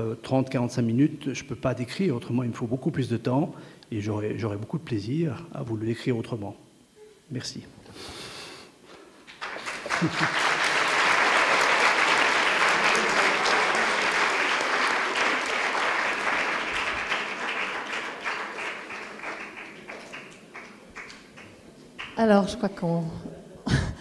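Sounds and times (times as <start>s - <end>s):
audience applauding: 9.3s - 22.4s.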